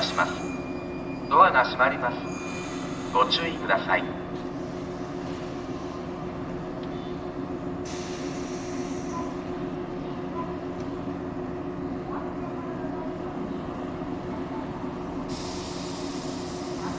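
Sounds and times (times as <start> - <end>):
electric train humming: 0.0 - 16.9
compressed air hiss: 7.8 - 9.1, 15.3 - 16.9.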